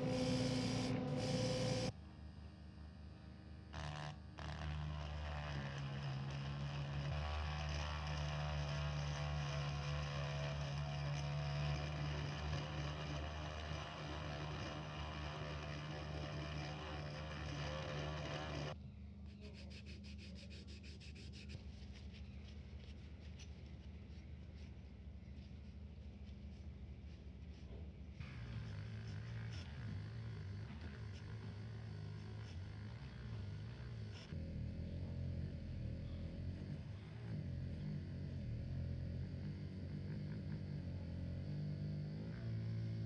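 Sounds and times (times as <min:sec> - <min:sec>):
cotton wad rubbing metal: 0:00.0 - 0:01.9, 0:03.8 - 0:18.8
rotary tool grinding metal: 0:00.0 - 0:01.9, 0:03.8 - 0:18.8.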